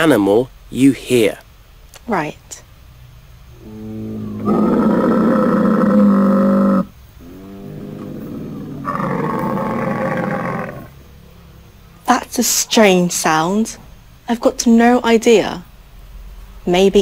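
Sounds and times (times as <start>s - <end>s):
camel bellowing: 3.6s - 11.4s.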